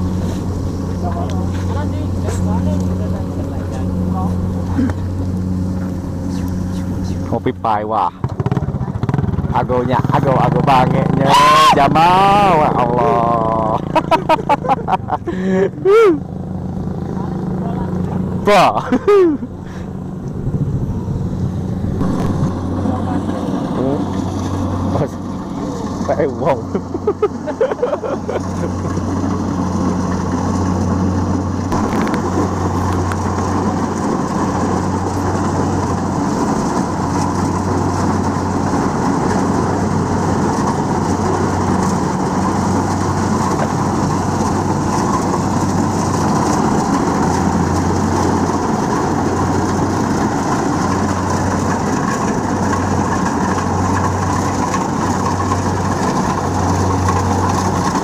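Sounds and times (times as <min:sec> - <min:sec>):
combine harvester diesel drone: 0:00.0 - 0:58.0
threshing machinery rush: 0:00.0 - 0:58.0.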